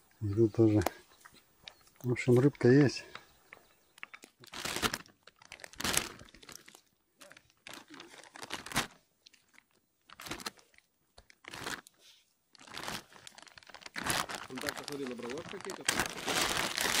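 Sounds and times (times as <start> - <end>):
plastic bag crinkling: 4.0 - 17.0.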